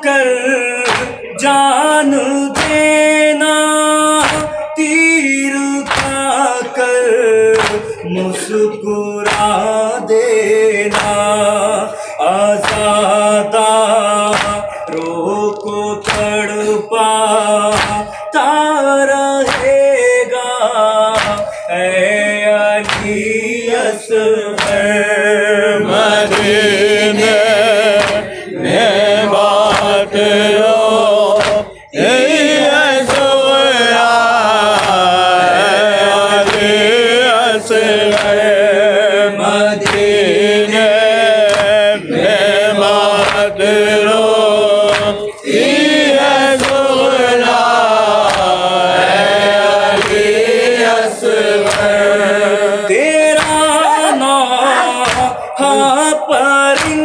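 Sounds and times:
man singing into a microphone: 0:00.0 - 0:57.0
men singing in chorus: 0:00.0 - 0:57.0
hands beating on chests: 0:00.8 - 0:01.2, 0:02.6 - 0:03.1, 0:04.2 - 0:04.6, 0:05.8 - 0:06.4, 0:07.5 - 0:08.0, 0:09.2 - 0:09.7, 0:10.9 - 0:11.5, 0:12.6 - 0:13.1, 0:14.2 - 0:16.6, 0:17.7 - 0:18.2, 0:19.4 - 0:20.0, 0:21.1 - 0:21.6, 0:22.8 - 0:23.4, 0:24.6 - 0:25.0, 0:26.2 - 0:30.4, 0:31.2 - 0:31.8, 0:33.0 - 0:33.5, 0:34.6 - 0:35.8, 0:36.4 - 0:36.8, 0:38.0 - 0:38.5, 0:39.8 - 0:40.2, 0:41.4 - 0:41.9, 0:43.0 - 0:43.6, 0:44.8 - 0:45.8, 0:46.4 - 0:47.1, 0:48.2 - 0:48.6, 0:49.9 - 0:50.5, 0:51.6 - 0:52.1, 0:53.3 - 0:54.0, 0:54.8 - 0:55.5, 0:56.7 - 0:57.0.

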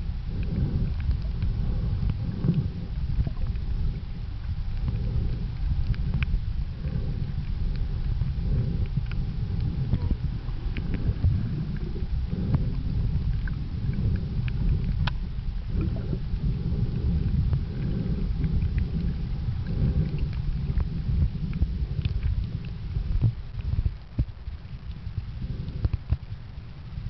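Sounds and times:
underwater rumble of moving water: 0:00.0 - 0:27.0
sharp underwater clicks: 0:04.7 - 0:26.4.

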